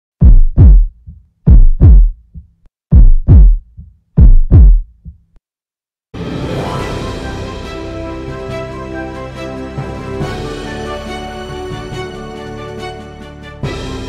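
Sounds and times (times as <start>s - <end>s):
deep heartbeat thumps: 0.2s - 5.3s
theme music: 6.1s - 14.0s.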